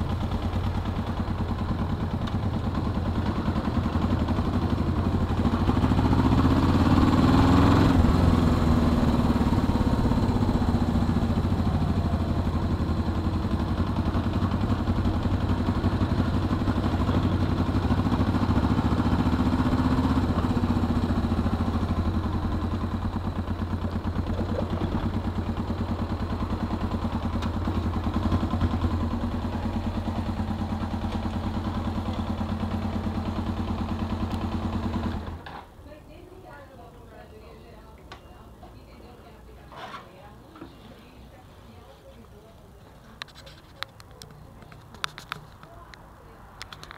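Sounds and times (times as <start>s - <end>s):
motorcycle engine revving: 0.0s - 35.5s
motorcycle engine idling: 0.0s - 35.6s.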